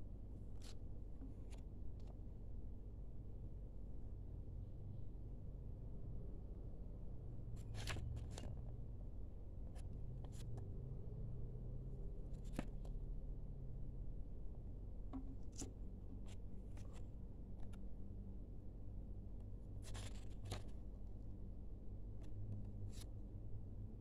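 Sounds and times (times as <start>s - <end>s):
steady low hum: 0.0s - 24.0s
paper leaflets crinkling and rustling: 7.6s - 8.6s, 19.8s - 20.8s.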